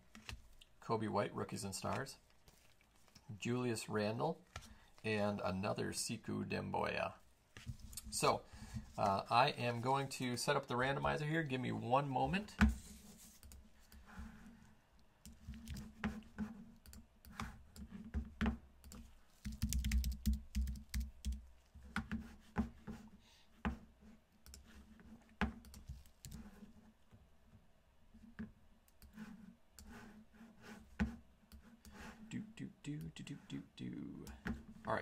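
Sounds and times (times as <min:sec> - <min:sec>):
keyboard typing: 0:18.8 - 0:21.4.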